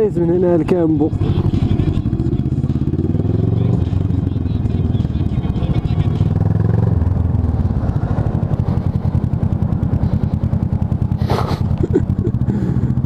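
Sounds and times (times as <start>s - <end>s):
motorcycle engine at low revs: 0.0s - 13.0s.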